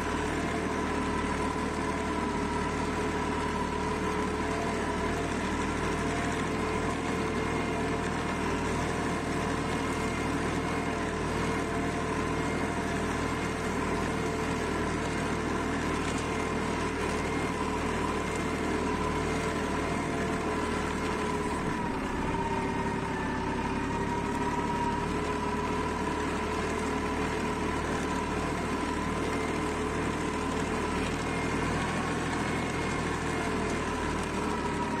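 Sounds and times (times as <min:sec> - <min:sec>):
tractor diesel engine under load: 0:00.0 - 0:35.0.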